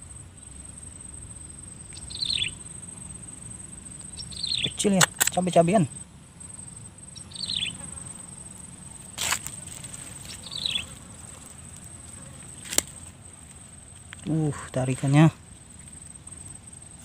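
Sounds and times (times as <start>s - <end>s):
high insect drone: 0.0s - 17.0s
bird chirping: 1.7s - 9.2s, 10.2s - 16.5s
sharp clicks: 4.9s - 5.6s.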